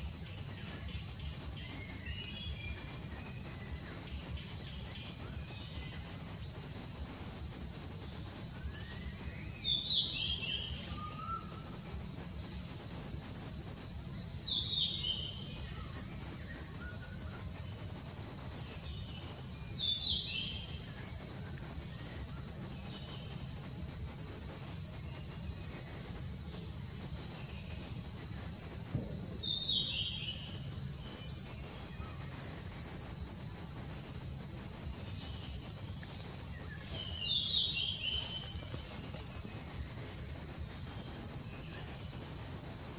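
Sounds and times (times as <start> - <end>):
insect drone: 0.0 - 42.9.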